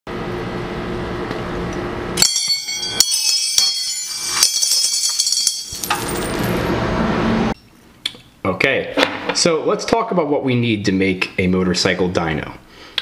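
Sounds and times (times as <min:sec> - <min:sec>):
metal objects clattering: 0:02.2 - 0:06.7
coins jingling: 0:02.3 - 0:06.7.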